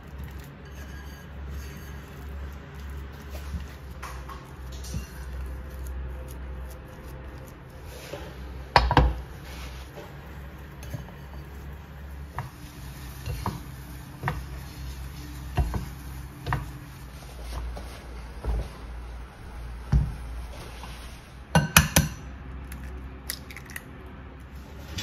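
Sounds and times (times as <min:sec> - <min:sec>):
spatula scraping dough in saucepan: 0:00.0 - 0:18.3
low steady hum: 0:00.0 - 0:25.0.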